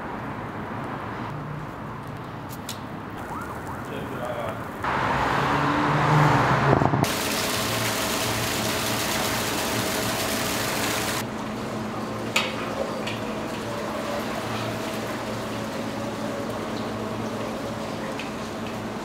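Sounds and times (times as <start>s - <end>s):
water pouring and splashing into tank: 7.0s - 11.2s.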